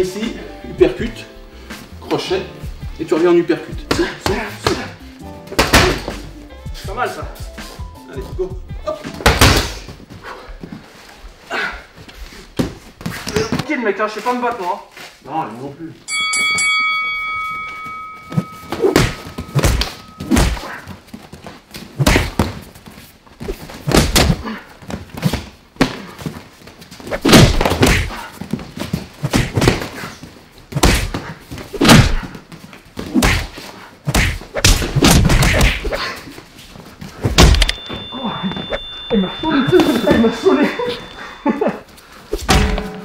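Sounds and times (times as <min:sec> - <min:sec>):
punches and kicks thudding: 0:05.5 - 0:06.2, 0:09.2 - 0:10.0, 0:18.5 - 0:20.8, 0:22.0 - 0:22.7, 0:23.6 - 0:24.5, 0:27.2 - 0:30.0, 0:30.7 - 0:32.4, 0:33.0 - 0:36.0, 0:37.2 - 0:37.7, 0:42.4 - 0:43.0.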